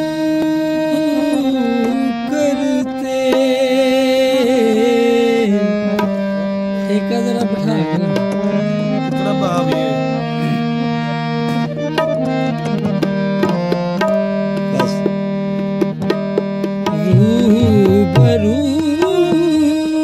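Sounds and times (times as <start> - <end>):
harmonium notes: 0.0 - 20.0
tabla strokes: 11.6 - 19.6.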